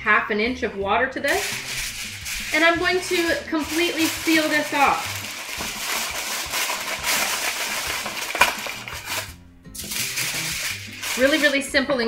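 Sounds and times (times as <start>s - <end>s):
background music: 0.0s - 12.0s
aluminum foil crinkling: 1.3s - 11.8s.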